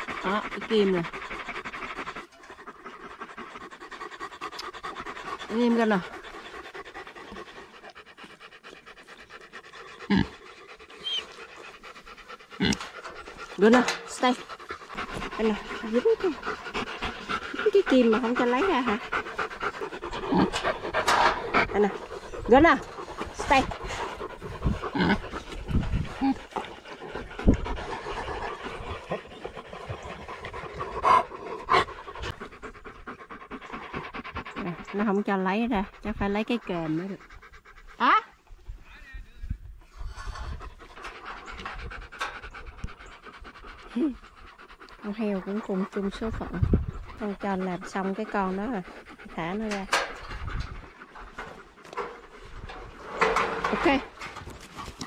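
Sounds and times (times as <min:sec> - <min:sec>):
dog panting: 0:00.0 - 0:38.8, 0:39.6 - 0:55.0.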